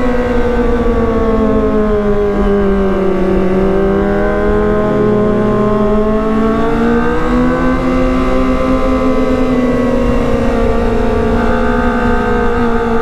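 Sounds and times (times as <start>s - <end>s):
low rushing noise: 0.0s - 8.5s
high-revving motorcycle engine: 0.0s - 13.0s.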